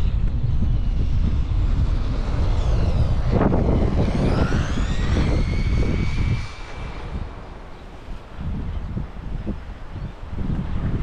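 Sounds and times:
electric motor whining: 0.0 - 7.9
wind rumble on microphone: 0.0 - 11.0.

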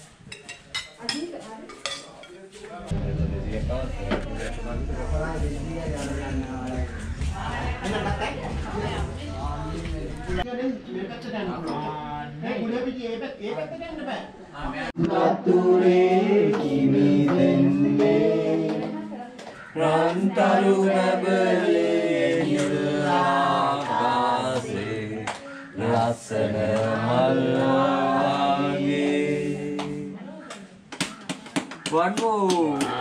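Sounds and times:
group singing unaccompanied: 2.9 - 10.5, 14.9 - 30.9.

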